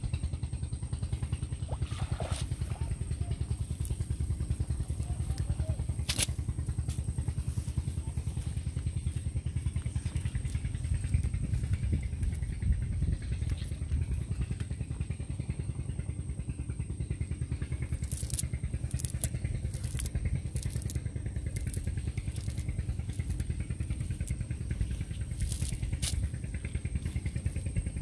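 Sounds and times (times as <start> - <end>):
engine running: 0.0 - 28.0
crackles: 3.3 - 12.6, 17.6 - 28.0.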